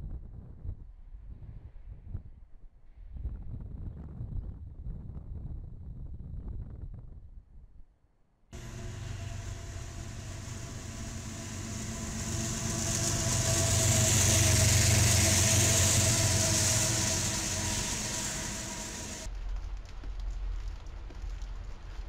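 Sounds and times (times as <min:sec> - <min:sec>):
diesel locomotive engines droning: 0:08.6 - 0:19.3
wheels hissing on rail: 0:08.6 - 0:19.3.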